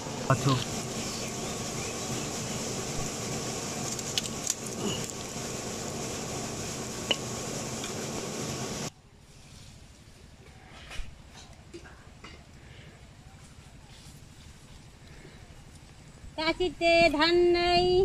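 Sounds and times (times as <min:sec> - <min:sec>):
fat sizzling in a wok: 0:00.4 - 0:09.8
sharp popping of hot fat: 0:03.7 - 0:05.4, 0:07.0 - 0:08.0.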